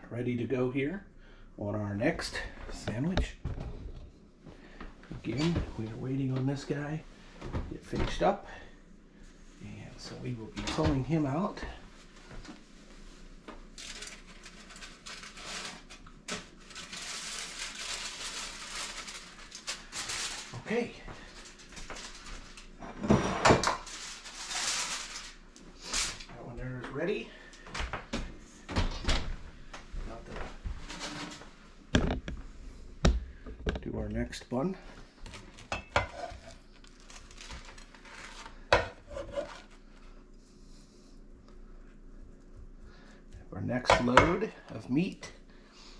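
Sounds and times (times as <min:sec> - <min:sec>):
aluminium foil crinkling: 0:13.7 - 0:22.8, 0:23.8 - 0:26.3, 0:36.4 - 0:38.7.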